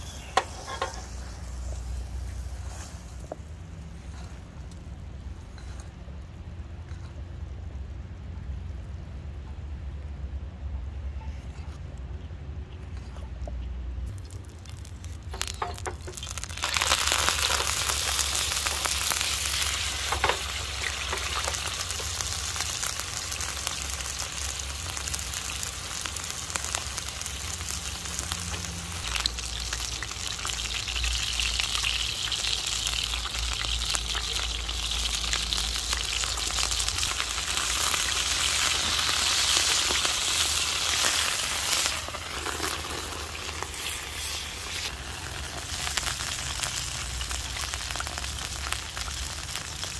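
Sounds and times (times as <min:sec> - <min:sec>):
meat sizzling in oil: 0:14.1 - 0:49.9.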